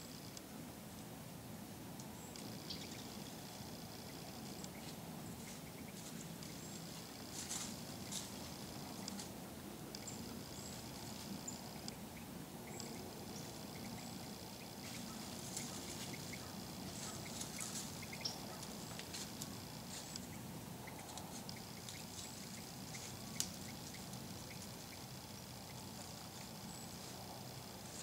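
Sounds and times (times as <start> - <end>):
faint high-pitched whine: 0.0 - 28.0
leaves rustling and crackling: 2.0 - 12.2, 12.8 - 28.0.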